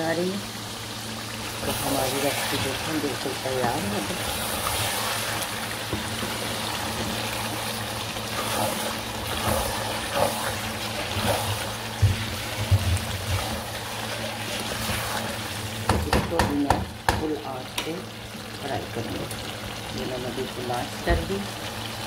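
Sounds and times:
curry sizzling and bubbling: 0.0 - 22.0.

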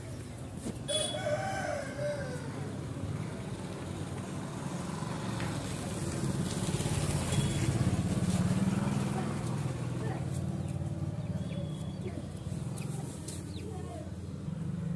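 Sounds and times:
rooster crowing: 0.9 - 2.8
low rumble of passing vehicle: 1.0 - 14.9.

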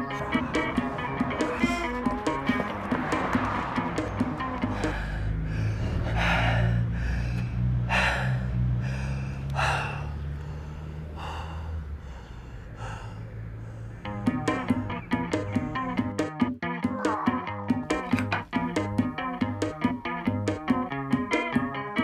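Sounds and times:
man panting: 0.0 - 2.7, 4.4 - 14.2.

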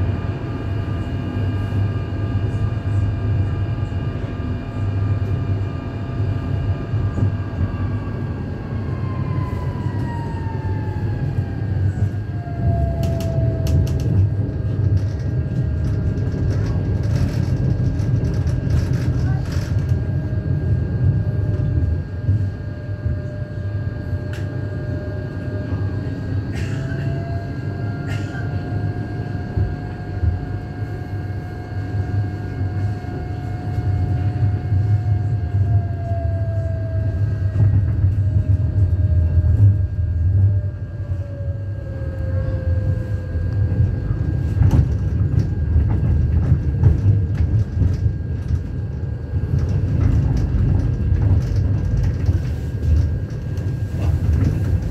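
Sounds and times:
tram wheels rumbling on rail: 0.0 - 54.9
traction motor whine: 6.9 - 18.8.

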